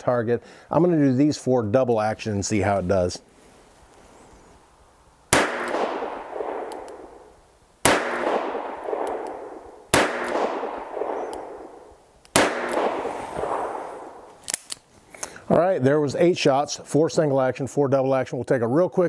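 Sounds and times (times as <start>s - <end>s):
revolver shots with echo: 5.3s - 7.2s, 7.9s - 14.3s.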